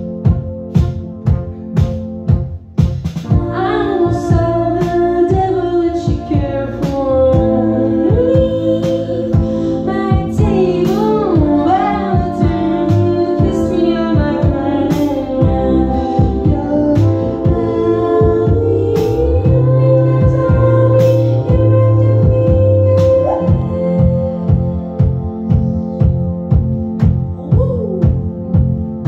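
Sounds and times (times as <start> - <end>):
electric bass: 0.0 - 29.0
steady drum beat: 0.0 - 29.0
synthesizer keyboards: 0.0 - 29.0
women singing: 3.2 - 25.2.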